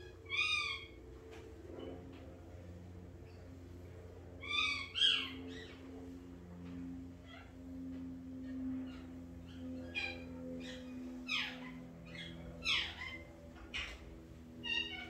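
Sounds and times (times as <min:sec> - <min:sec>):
pet high-pitched cries: 0:00.0 - 0:01.0, 0:04.4 - 0:05.7, 0:08.9 - 0:14.0, 0:14.6 - 0:15.0
low hum: 0:00.0 - 0:15.0.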